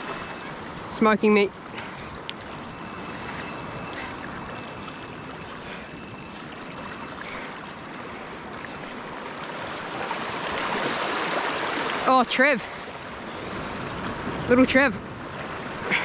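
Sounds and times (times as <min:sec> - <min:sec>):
fishing reel ticking: 0:00.0 - 0:10.8, 0:12.8 - 0:14.3
water washing: 0:00.0 - 0:12.8
wind: 0:00.0 - 0:16.0.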